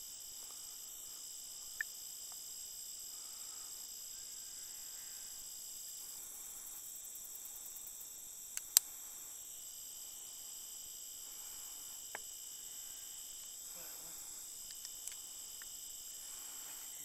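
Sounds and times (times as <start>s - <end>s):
insects trilling: 0.0s - 17.0s
sharp clicks: 8.5s - 8.9s, 14.6s - 15.7s.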